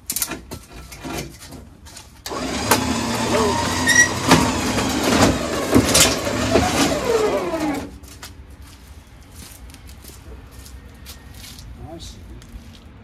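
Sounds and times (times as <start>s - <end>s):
electric winch motor whining: 2.3s - 7.9s.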